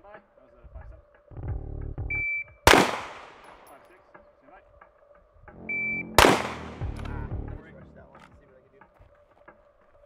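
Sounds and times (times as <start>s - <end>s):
pistol shot: 2.6s - 3.7s, 5.8s - 7.2s
shot timer beep: 5.6s - 6.2s.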